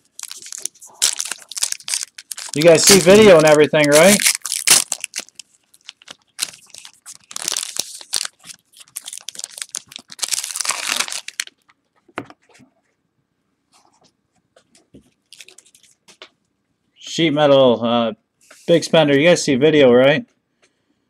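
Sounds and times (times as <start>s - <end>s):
foil wrappers crinkling and tearing: 0.0s - 11.8s, 15.3s - 15.9s
cards tapping and rustling: 0.2s - 4.2s.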